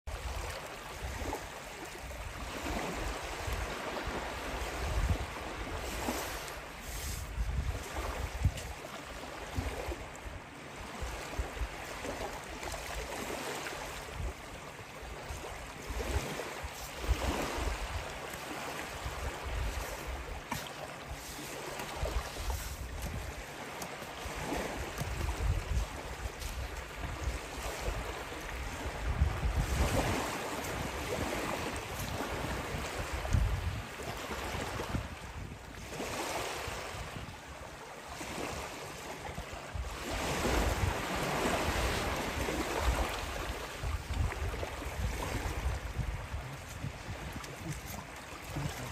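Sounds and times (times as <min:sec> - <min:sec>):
waves on a gravel beach: 0:00.1 - 0:48.9
wind buffeting microphone: 0:06.9 - 0:08.8, 0:21.9 - 0:23.4, 0:24.2 - 0:37.4, 0:39.7 - 0:48.9.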